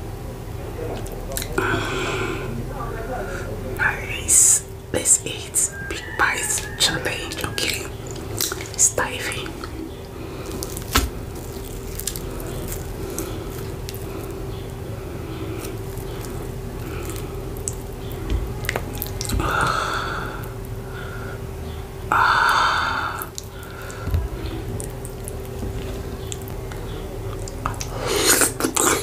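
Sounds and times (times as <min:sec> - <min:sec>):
wet sticky food handling: 0:05.4 - 0:29.0
wet mouth sound: 0:07.4 - 0:14.4, 0:24.7 - 0:29.0.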